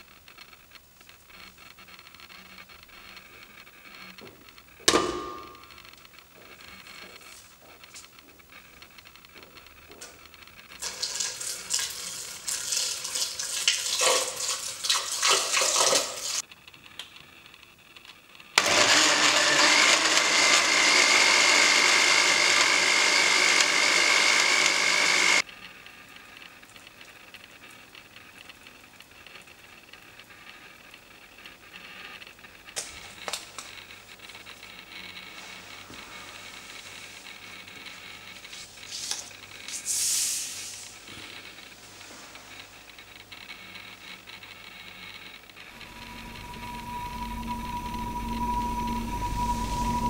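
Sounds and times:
electric blender running: 10.8 - 16.4, 18.6 - 25.5, 45.6 - 50.0.

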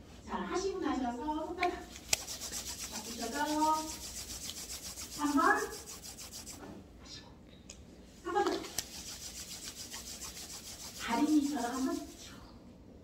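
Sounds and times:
hands rubbing together: 1.9 - 6.7, 8.3 - 12.3.

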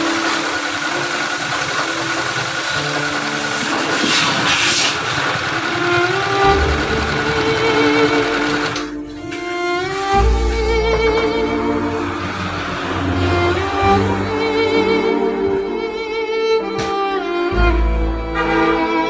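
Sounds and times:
pressure washer spraying water: 0.0 - 6.5
background music: 0.0 - 19.0.

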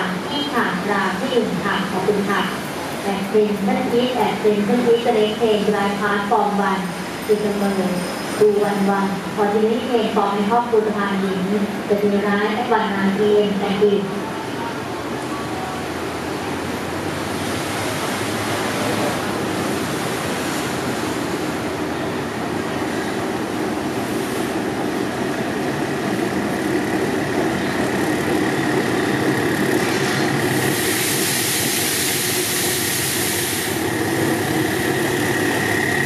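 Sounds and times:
diesel locomotive running: 0.0 - 36.0
train hiss: 29.3 - 36.0
high steady squeal: 33.6 - 36.0.

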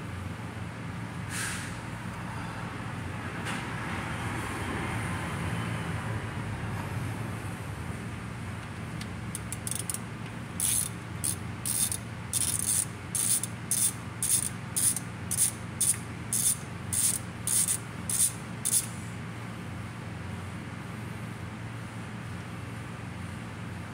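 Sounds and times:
hand ratchet clicking: 9.3 - 18.9.

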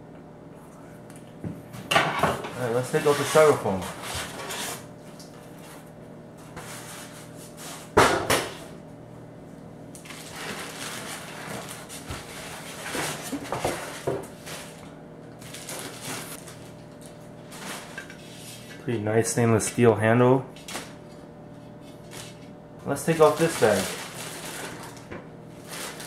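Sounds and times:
styrofoam scraping: 2.9 - 4.9, 23.2 - 25.0, 25.6 - 26.0
plastic rustling: 10.0 - 14.8, 15.4 - 18.4, 23.1 - 26.0.

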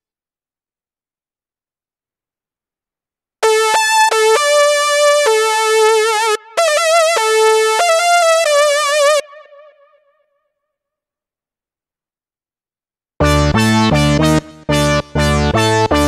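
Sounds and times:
buzzy sawtooth synth lead melody: 3.4 - 10.0.

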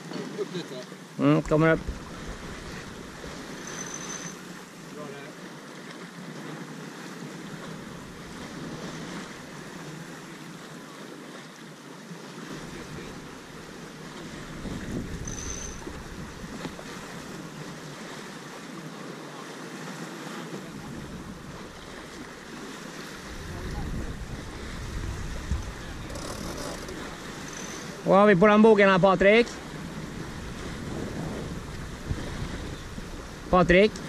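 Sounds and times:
water and wind wash: 0.0 - 34.0
wind buffeting microphone: 1.6 - 3.7, 12.5 - 17.7, 20.6 - 28.1, 29.5 - 34.0.

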